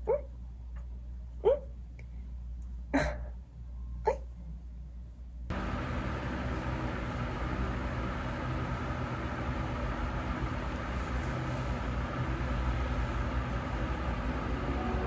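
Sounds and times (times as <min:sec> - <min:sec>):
hair dryer blowing: 0:05.5 - 0:15.0.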